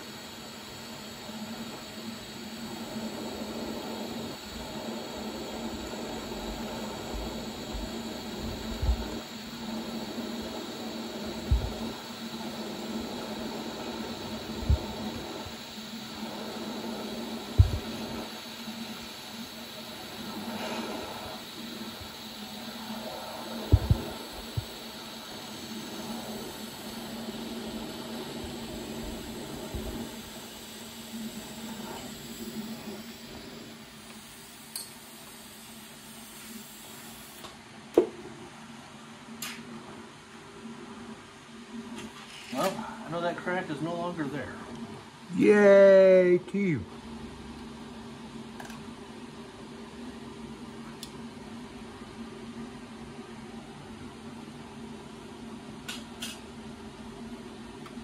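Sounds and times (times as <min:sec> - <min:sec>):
welding arc hissing: 0:00.0 - 0:37.5
faint hum: 0:00.0 - 0:58.0.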